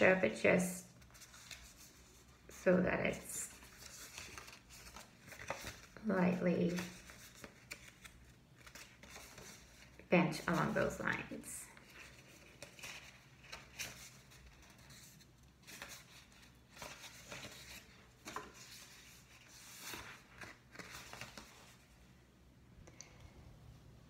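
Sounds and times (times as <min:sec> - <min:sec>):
paper rustling and creasing: 0:00.9 - 0:22.0.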